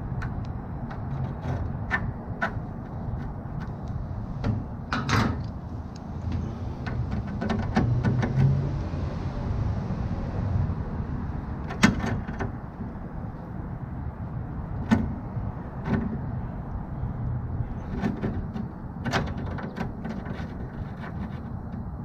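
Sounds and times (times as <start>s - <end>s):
metallic clicks and creaks: 0.0s - 8.6s, 14.7s - 22.0s.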